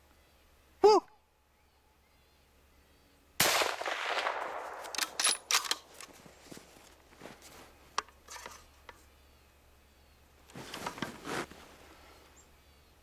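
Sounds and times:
rifle shot: 3.4s - 5.6s
rifle bolt clicks: 4.7s - 6.0s.

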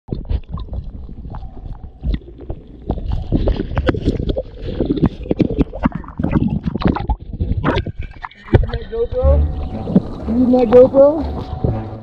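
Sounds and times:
knocks and scrapes on camera: 0.1s - 8.8s
water sloshing and gurgling: 0.1s - 12.0s.

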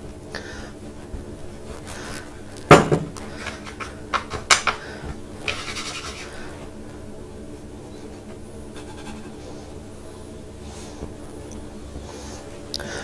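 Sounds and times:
utensil knocking on wood: 2.7s - 4.8s
scraping rub: 5.4s - 6.6s, 7.9s - 9.7s.

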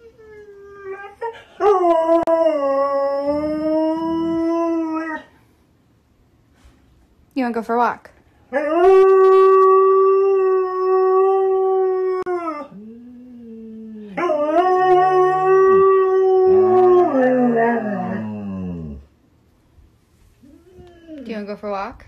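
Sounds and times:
dog howling: 8.6s - 19.1s
dog moaning low: 11.1s - 19.1s.

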